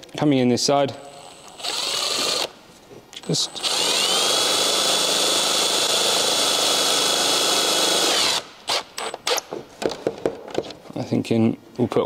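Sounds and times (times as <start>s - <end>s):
impact driver whine: 1.4s - 2.5s, 3.2s - 9.5s.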